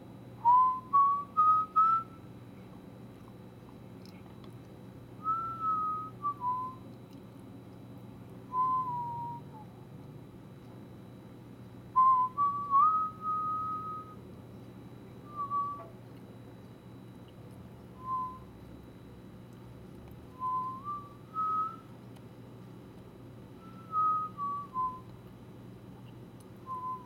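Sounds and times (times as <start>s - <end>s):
steady low hum: 0.0s - 27.0s
clear whistle: 0.4s - 2.3s, 5.2s - 6.8s, 8.5s - 9.7s, 12.0s - 14.2s, 15.2s - 16.0s, 18.0s - 18.5s, 20.4s - 21.9s, 23.6s - 25.1s, 26.7s - 27.0s.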